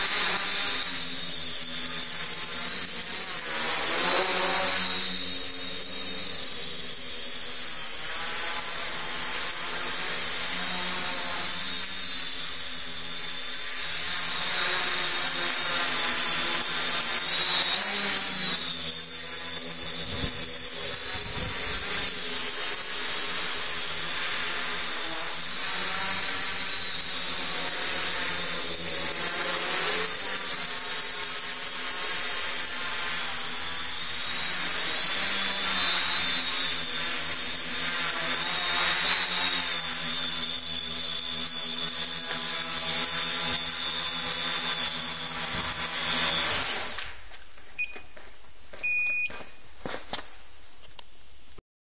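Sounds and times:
drone motors and propellers whining: 0:00.0 - 0:48.2
short electronic beeps: 0:48.8 - 0:49.6.

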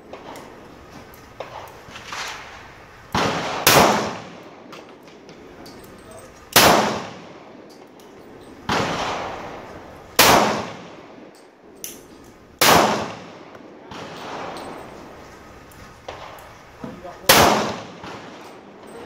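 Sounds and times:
pistol shots ringing: 0:03.1 - 0:15.0, 0:16.1 - 0:18.9.

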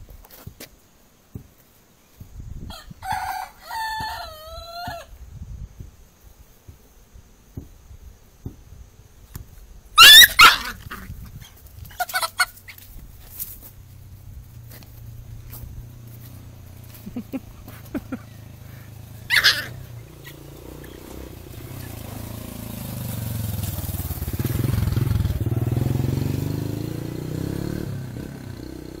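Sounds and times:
scuffling on dirt: 0:00.0 - 0:02.4, 0:09.4 - 0:25.0
loud piercing cry: 0:10.0 - 0:11.0, 0:19.2 - 0:20.4
short pitch-varying calls: 0:10.0 - 0:11.0, 0:17.2 - 0:22.0.

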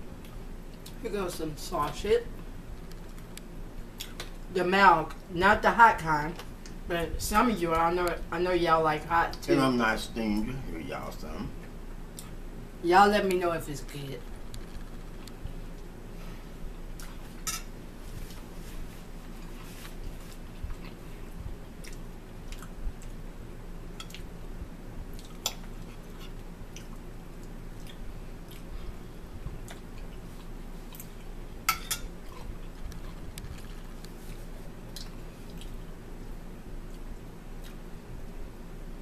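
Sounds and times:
steady low hum: 0:00.0 - 0:39.0
chewing food: 0:19.2 - 0:23.2, 0:25.1 - 0:28.8, 0:29.5 - 0:31.4, 0:32.2 - 0:35.9, 0:36.8 - 0:37.9.

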